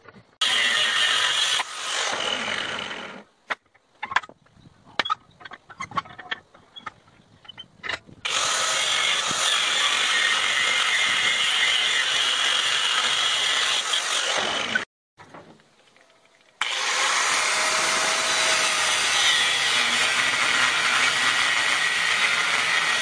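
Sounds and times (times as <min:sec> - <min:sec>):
angle grinder grinding steel: 0:08.3 - 0:14.9, 0:16.6 - 0:23.0.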